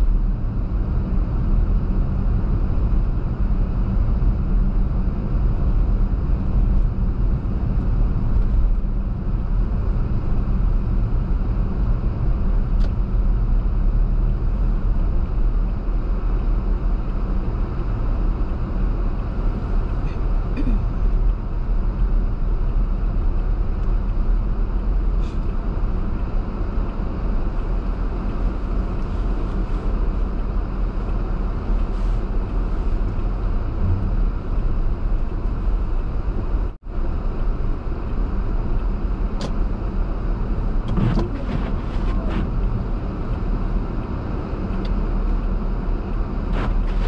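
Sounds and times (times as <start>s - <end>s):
car driving on snowy road: 0.0s - 47.0s.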